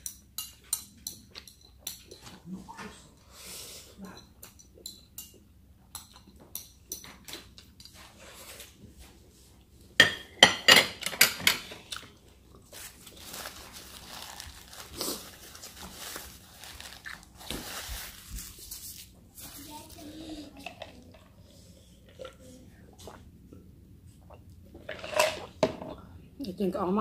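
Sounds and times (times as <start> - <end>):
chewing with small clicks: 4.4 - 7.8
paper tissue rustling: 12.7 - 20.0.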